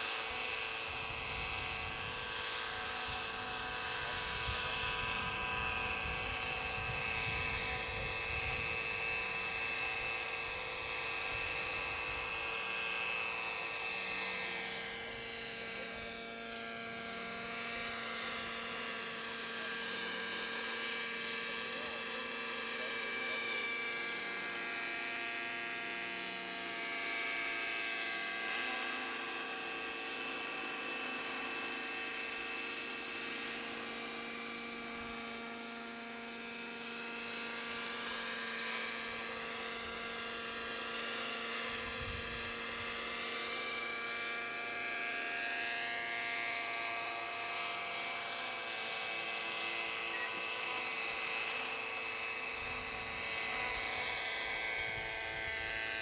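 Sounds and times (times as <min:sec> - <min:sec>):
model helicopter whining: 0:00.0 - 0:56.0.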